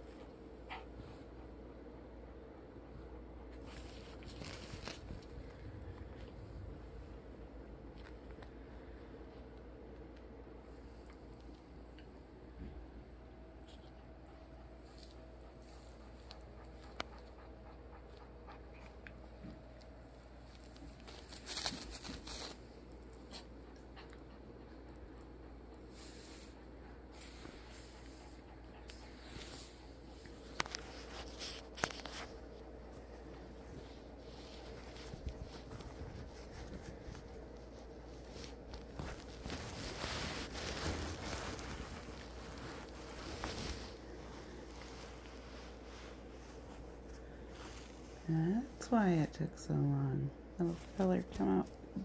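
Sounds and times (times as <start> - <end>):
movements on bedding: 2.9 - 9.8, 13.6 - 23.6, 25.8 - 49.1
fur and blanket rustling: 2.9 - 11.8, 19.1 - 23.5, 25.8 - 49.3, 50.4 - 52.0.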